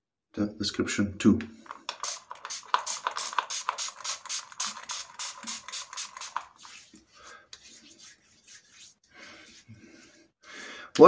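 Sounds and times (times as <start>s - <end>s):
razor scraping stubble: 1.7s - 9.7s.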